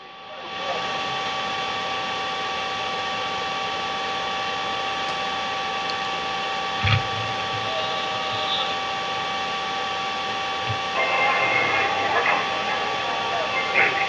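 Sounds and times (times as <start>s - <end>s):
steady high tones: 6.7s - 14.0s
short dull thump: 6.8s - 7.2s.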